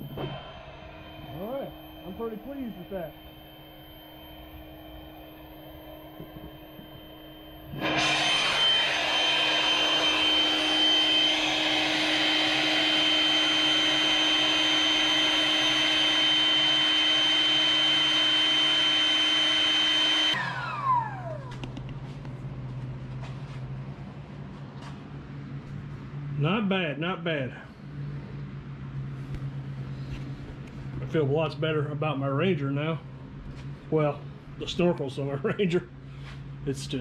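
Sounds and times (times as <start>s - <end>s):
electric machine whining: 0.0s - 23.3s
low hum: 0.0s - 37.0s.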